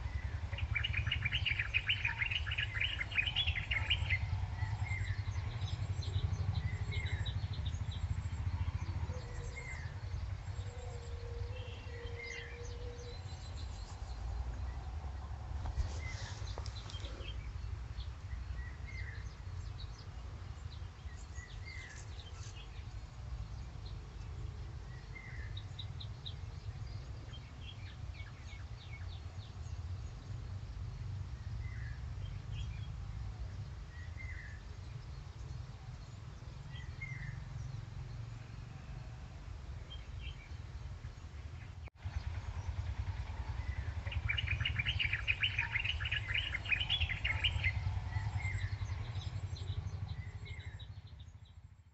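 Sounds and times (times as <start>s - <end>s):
bird trills: 0.0s - 4.4s, 43.7s - 49.1s
steady low rumble: 0.0s - 51.9s.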